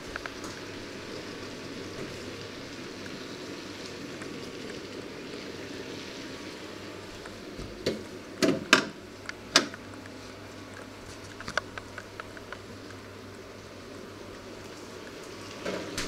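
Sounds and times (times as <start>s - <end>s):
steady hiss: 0.0s - 16.0s.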